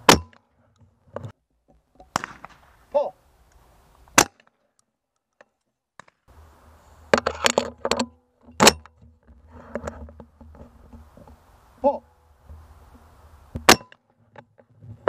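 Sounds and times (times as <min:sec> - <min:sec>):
shotgun handling clicks and clatter: 0:00.1 - 0:02.7, 0:03.5 - 0:06.3, 0:07.1 - 0:11.4
shotgun shot: 0:02.1 - 0:02.7.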